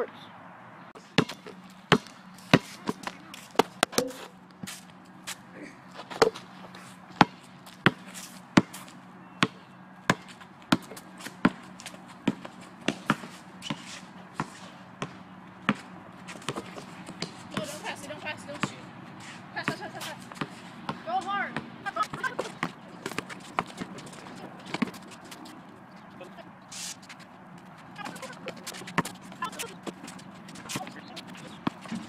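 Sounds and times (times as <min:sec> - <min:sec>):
basketball bouncing on hard court: 0:01.0 - 0:04.2, 0:07.2 - 0:08.0, 0:08.6 - 0:08.8, 0:09.4 - 0:13.8, 0:14.4 - 0:18.8, 0:19.6 - 0:25.8, 0:27.6 - 0:32.0.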